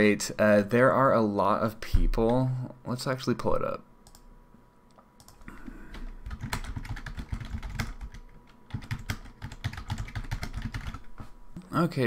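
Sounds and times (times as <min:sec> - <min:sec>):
keyboard typing: 0:04.0 - 0:04.2, 0:05.2 - 0:11.1.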